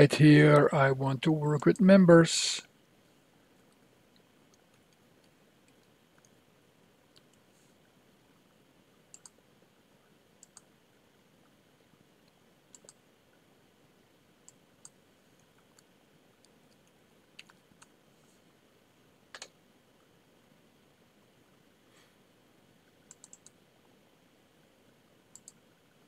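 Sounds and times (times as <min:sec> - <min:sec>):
computer keyboard clicks: 0:09.1 - 0:09.4, 0:19.3 - 0:19.5, 0:23.1 - 0:23.6, 0:25.3 - 0:25.6
computer mouse clicks: 0:09.1 - 0:09.4, 0:10.4 - 0:10.7, 0:12.3 - 0:13.0, 0:14.4 - 0:18.0, 0:19.3 - 0:19.6, 0:23.0 - 0:23.6, 0:25.3 - 0:25.6.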